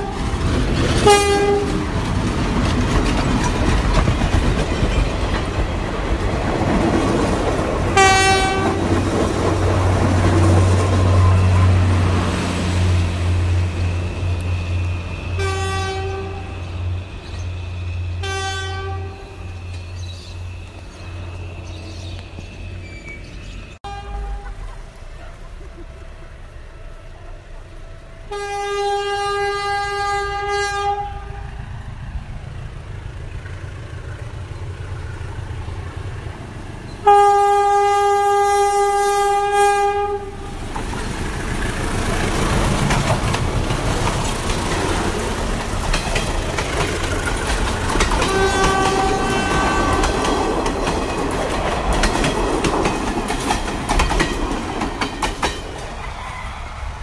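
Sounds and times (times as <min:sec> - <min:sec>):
wheels clacking over rail joints: 0:00.0 - 0:17.6, 0:39.9 - 0:56.2
train rumble: 0:00.0 - 0:57.0
locomotive horn blasts: 0:01.0 - 0:01.9, 0:08.0 - 0:08.9, 0:15.3 - 0:16.8, 0:18.2 - 0:19.6, 0:23.8 - 0:24.8, 0:28.2 - 0:31.5, 0:37.0 - 0:40.6, 0:48.2 - 0:50.4.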